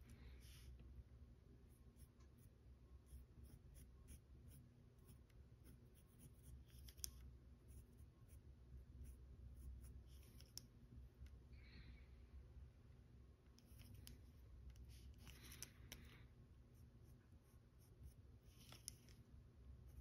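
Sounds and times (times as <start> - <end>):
low steady hum: 0.0 - 20.0
pencil scratching on paper: 1.7 - 10.6.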